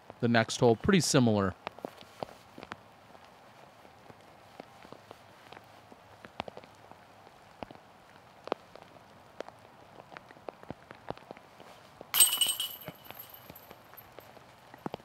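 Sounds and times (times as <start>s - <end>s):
rain falling: 2.6s - 15.0s
disc striking metal chains: 12.2s - 13.8s.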